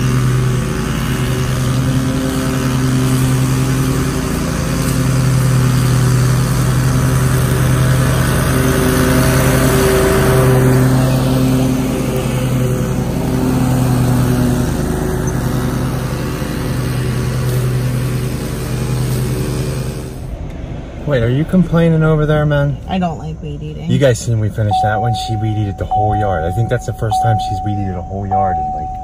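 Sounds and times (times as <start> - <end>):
string trimmer whine: 0.0 - 20.4
lawn mower engine drone: 0.0 - 23.3, 23.9 - 29.0.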